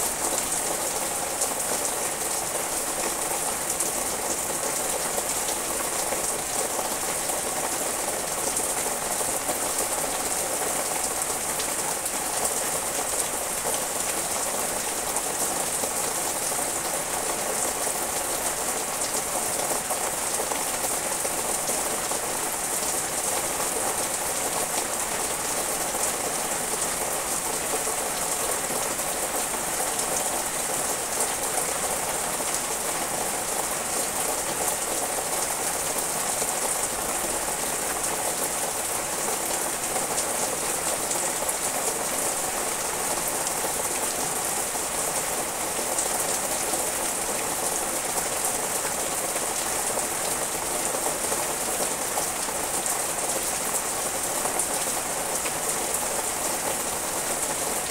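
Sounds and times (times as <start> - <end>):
rain falling on leaves: 0.0 - 57.9.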